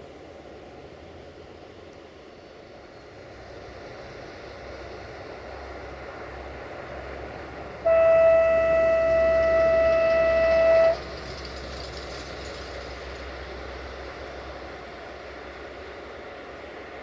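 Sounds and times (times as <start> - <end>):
low train rumble: 0.0 - 17.0
locomotive horn: 7.8 - 11.2.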